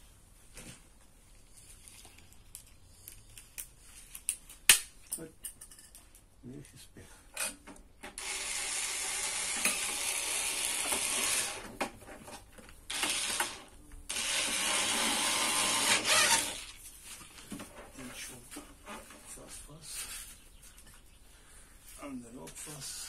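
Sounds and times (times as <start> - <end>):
screwdriver whirring and ratcheting: 8.1 - 11.7, 12.9 - 16.8.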